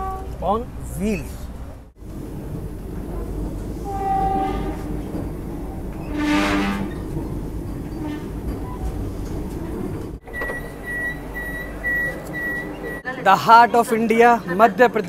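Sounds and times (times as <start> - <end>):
train horn blasts: 0.0 - 0.4, 3.8 - 5.2, 6.0 - 7.1
train rumble: 0.0 - 14.6.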